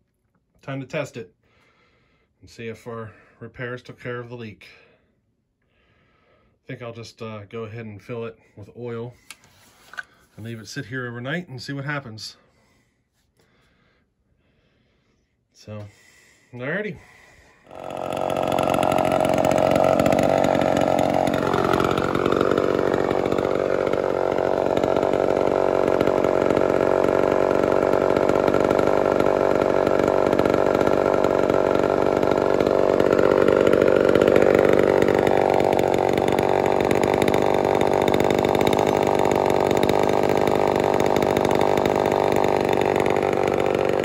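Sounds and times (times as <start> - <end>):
chainsaw idling: 16.6 - 44.0.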